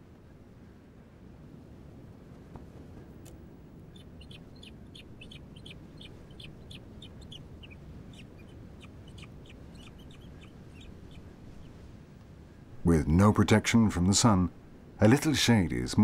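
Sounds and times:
low steady rumble: 0.0 - 16.0
bird chick chirping: 3.9 - 11.8.

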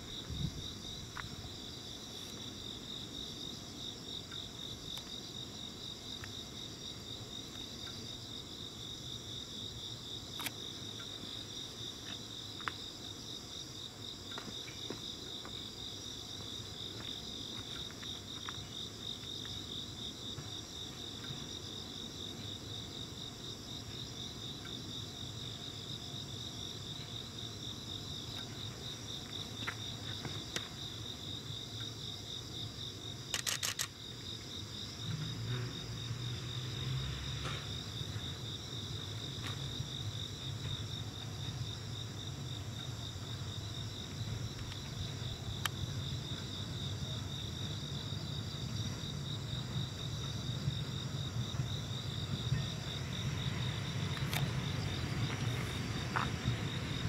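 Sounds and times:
crickets chirping: 0.0 - 57.0
sharp burst of clicks: 33.3 - 34.0.

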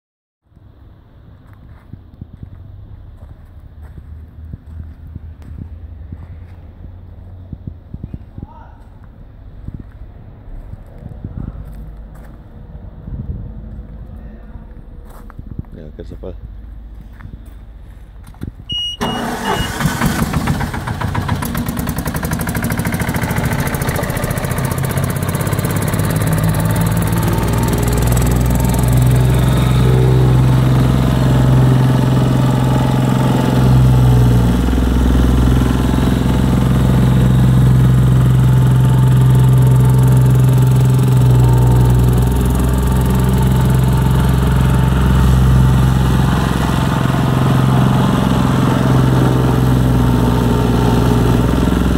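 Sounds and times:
diesel engine starting and running: 0.5 - 51.9
plate compactor vibrating on gravel: 19.1 - 51.9.

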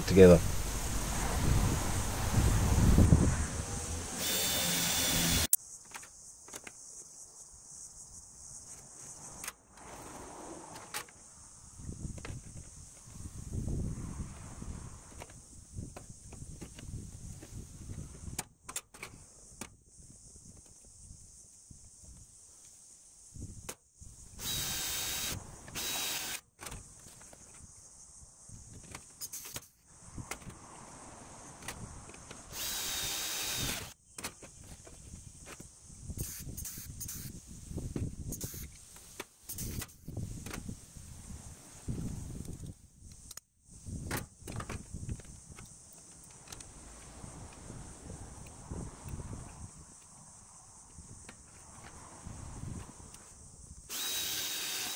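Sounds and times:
cordless drill whining: 4.1 - 5.6, 24.4 - 26.4, 32.5 - 33.9, 53.9 - 54.9.

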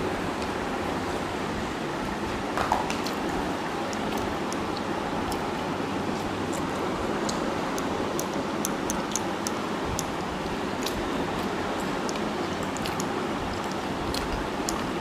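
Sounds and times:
fingers mixing rice on plates: 3.0 - 15.0
people chewing: 3.0 - 15.0.

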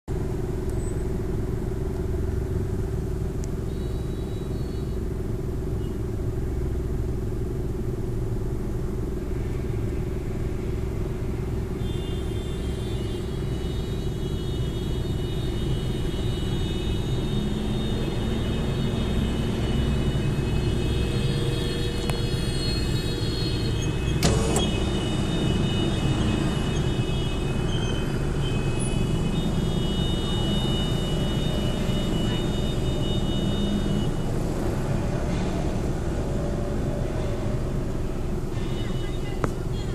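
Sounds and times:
traffic idling: 0.1 - 39.9
car horns blaring: 10.6 - 39.9.

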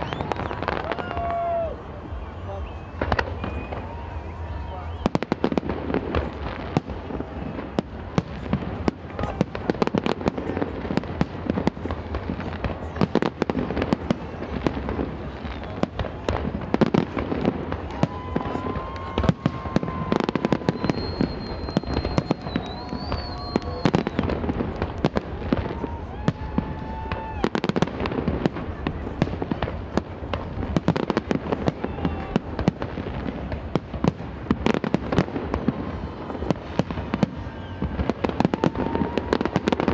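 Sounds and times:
high firework whistle: 0.0 - 9.4, 14.7 - 16.2, 16.8 - 28.2, 34.0 - 39.9
fireworks bursts and crackling: 0.0 - 39.9.

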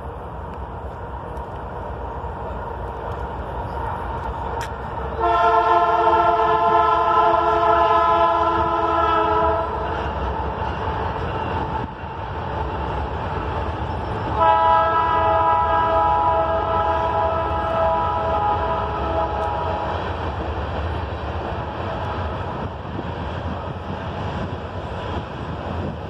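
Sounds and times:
train rumbling across trestle: 0.0 - 26.0
train air horn blast: 5.2 - 9.9, 14.4 - 20.0.

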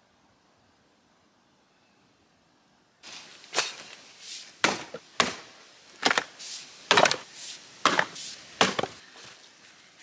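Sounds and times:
axe chopping wood: 4.6 - 6.3, 6.9 - 9.0.

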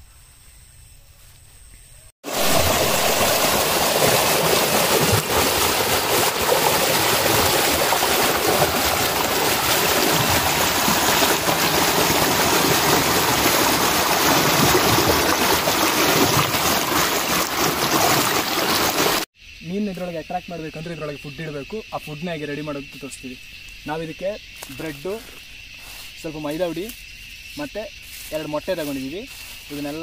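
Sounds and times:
water splashing over rocks: 2.2 - 19.3.

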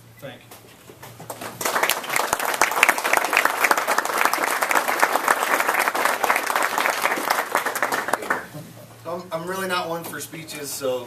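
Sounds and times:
audience applauding: 1.3 - 8.5.

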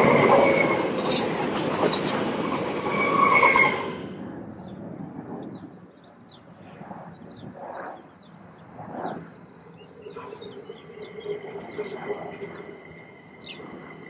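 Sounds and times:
electric train whine: 0.0 - 4.3, 9.9 - 14.0
small birds chirping: 5.5 - 14.0.

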